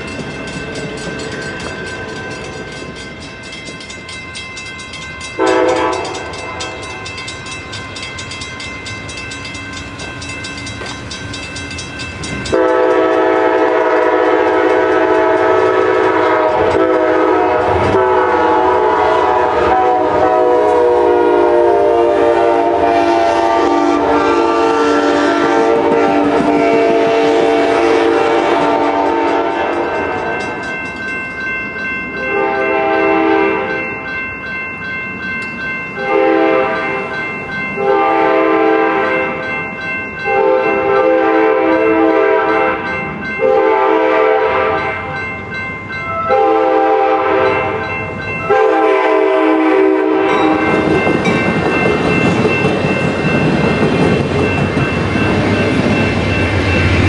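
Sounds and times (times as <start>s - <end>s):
crossing bell ringing: 0.0s - 57.0s
train cars rumbling: 0.0s - 57.0s
train horn blasts: 5.4s - 7.0s, 12.5s - 30.3s, 32.2s - 33.8s, 36.0s - 36.8s, 37.8s - 39.2s, 40.2s - 45.1s, 46.2s - 47.8s, 48.4s - 51.0s.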